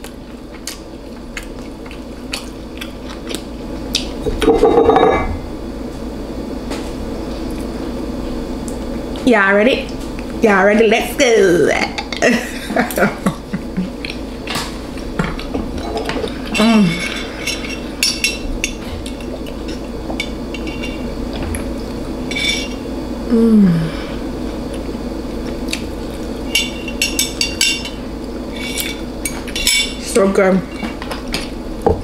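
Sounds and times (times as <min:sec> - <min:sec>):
utensil clinking against bowl: 0:26.5 - 0:28.0.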